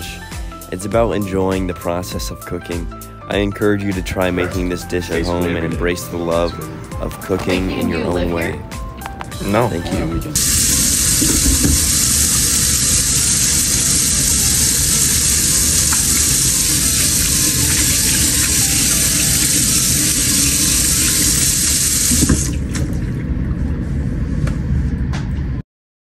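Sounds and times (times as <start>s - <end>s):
faucet running into steel sink: 10.4s - 23.0s.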